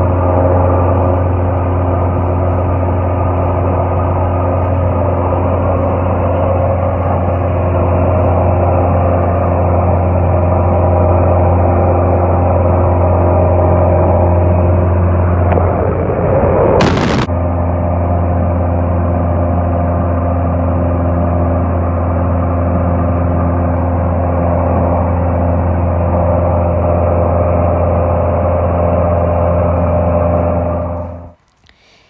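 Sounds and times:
light aircraft engine and propeller drone: 0.0 - 31.8
brief burst of noise: 15.3 - 17.3.

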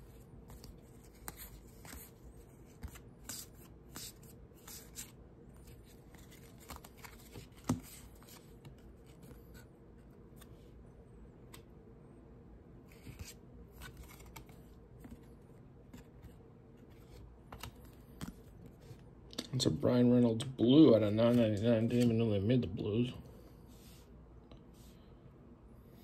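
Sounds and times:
cards sliding and flicking: 0.4 - 9.7, 12.9 - 16.3, 16.9 - 19.0.

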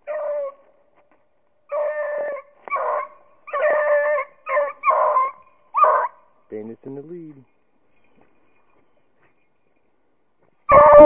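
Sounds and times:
hounds baying: 1.7 - 6.2, 10.7 - 11.0.

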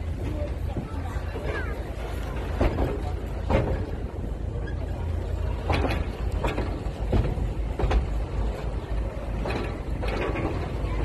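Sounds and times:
train rumbling: 0.0 - 11.0
train wheels clacking: 2.4 - 11.0.

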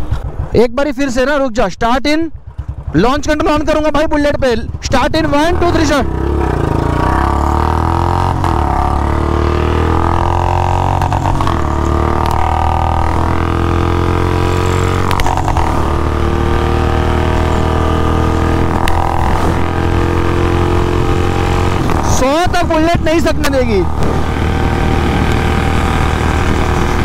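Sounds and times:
motorcycle engine accelerating: 2.3 - 27.0.

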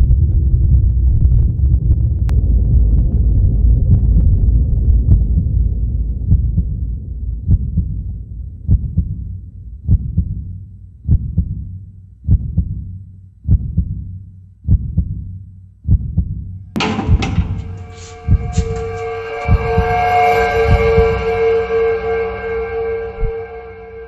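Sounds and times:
deep heartbeat thuds: 0.0 - 18.8
low rumble: 0.0 - 24.0.

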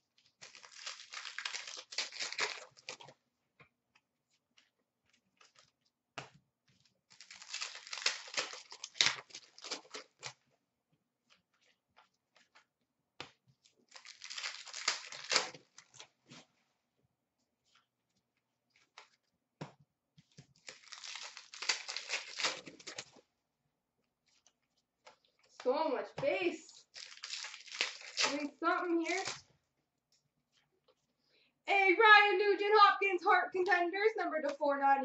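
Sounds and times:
foil wrappers tearing and crinkling: 0.1 - 3.2, 7.1 - 10.4, 13.9 - 16.4, 20.6 - 23.2, 26.7 - 29.5.

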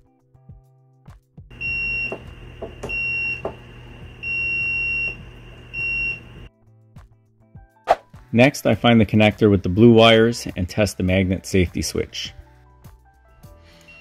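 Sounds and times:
multimeter beeps: 1.5 - 6.5.

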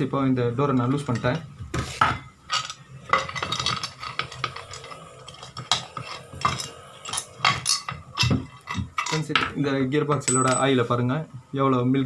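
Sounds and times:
metallic clinks and knocks of bolts: 6.4 - 10.8.

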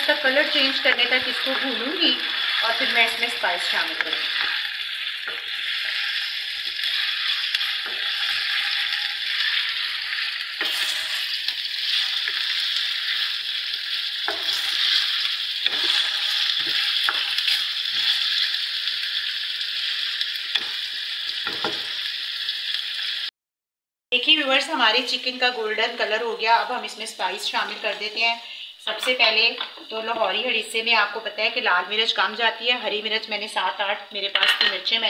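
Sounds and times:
chicken sizzling in hot oil: 0.0 - 23.3
spatula scraping a wok: 0.6 - 18.6.

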